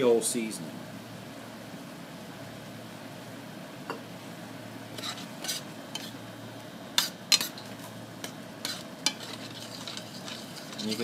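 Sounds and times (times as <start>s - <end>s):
faint sizzle: 0.0s - 11.0s
metal spoon scraping pan: 4.9s - 6.2s, 7.0s - 11.0s.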